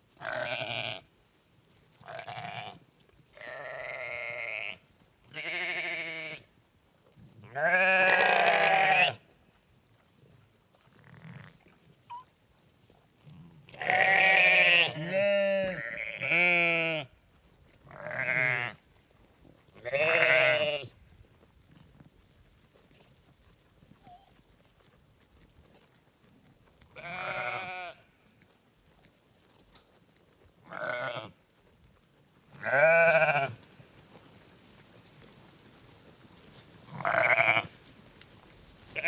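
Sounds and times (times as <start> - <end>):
sheep bleating: 0.2 - 1.0, 2.0 - 2.8, 3.4 - 6.5, 7.5 - 9.2, 13.7 - 17.1, 17.9 - 18.8, 19.8 - 20.9, 27.0 - 28.1, 30.7 - 31.4, 32.6 - 33.6, 36.9 - 37.7.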